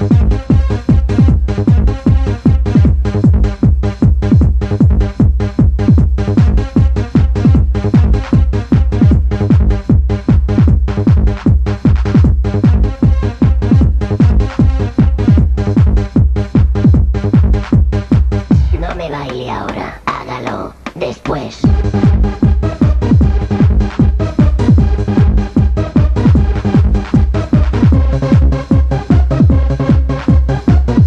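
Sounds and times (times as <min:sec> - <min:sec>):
kick drum: 0:00.0 - 0:20.3, 0:21.6 - 0:31.0.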